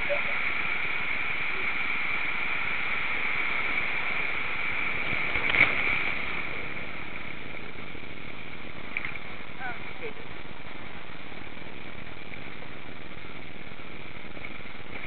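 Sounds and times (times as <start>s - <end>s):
water splash: 0.0s - 9.5s.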